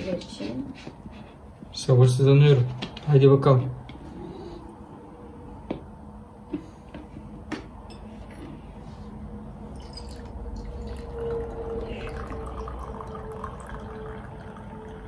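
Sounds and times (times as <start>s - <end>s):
tea pouring into glass cup: 9.7s - 15.0s.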